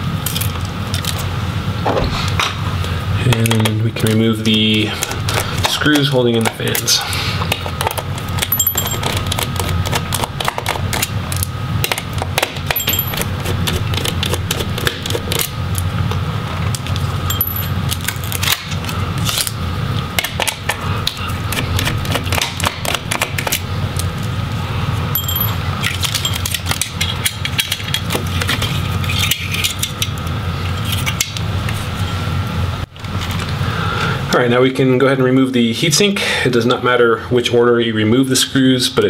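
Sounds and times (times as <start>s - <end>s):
steady low hum: 0.0s - 37.4s.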